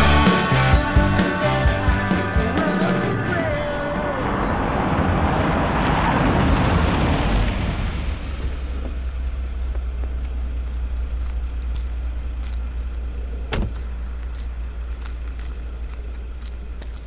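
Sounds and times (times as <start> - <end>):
steady low hum: 8.2 - 17.0
car door shutting: 13.5 - 13.8.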